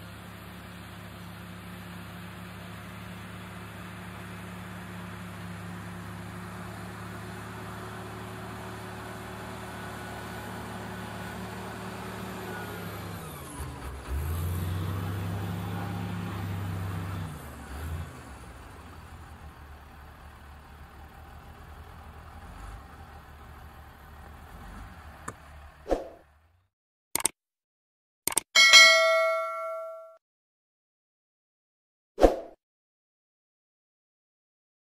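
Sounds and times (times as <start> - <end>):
bulldozer diesel engine running: 0.0 - 26.6.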